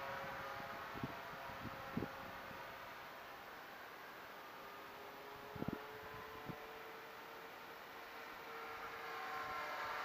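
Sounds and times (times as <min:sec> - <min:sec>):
distant model plane motor hum: 0:00.0 - 0:10.0
wind hiss: 0:00.0 - 0:10.0.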